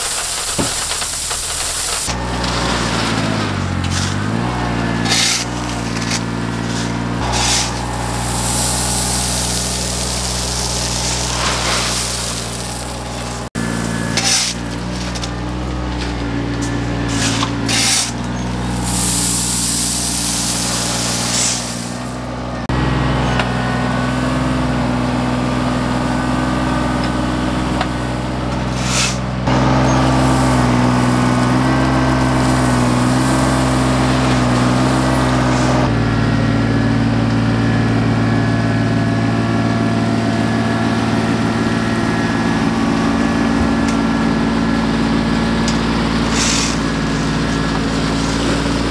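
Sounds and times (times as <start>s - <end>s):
bucket scraping rock: 0.0s - 22.1s, 28.7s - 35.9s, 45.5s - 48.9s
tractor diesel engine running: 0.0s - 48.9s
stones rattling: 5.1s - 13.5s.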